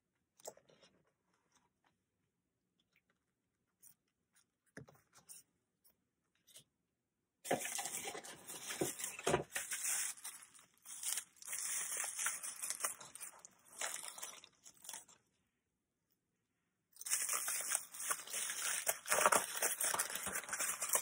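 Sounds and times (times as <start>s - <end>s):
bubble wrap crinkling and crackling: 7.5s - 15.3s, 17.0s - 21.0s.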